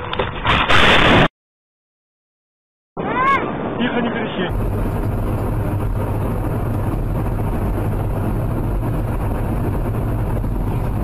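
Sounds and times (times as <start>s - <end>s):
car driving noise: 4.4s - 11.0s.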